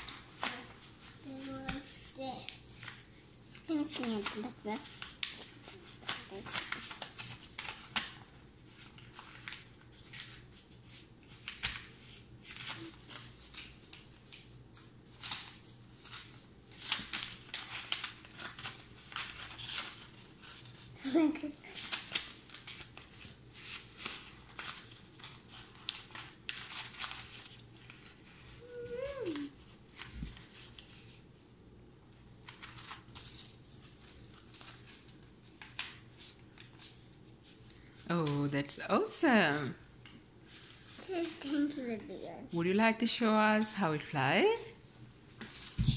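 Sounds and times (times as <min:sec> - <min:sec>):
paper folding and rustling: 0:00.0 - 0:31.3, 0:32.1 - 0:38.6, 0:39.5 - 0:43.5, 0:44.6 - 0:45.9.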